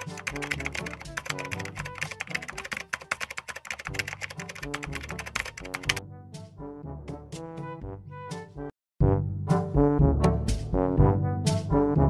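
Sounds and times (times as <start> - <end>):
keyboard typing: 0.0 - 6.0
background music with brass: 4.4 - 12.0.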